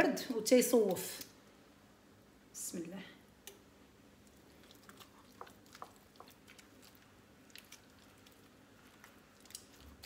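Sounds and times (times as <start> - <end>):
hands squeezing soft butter: 4.2 - 10.0.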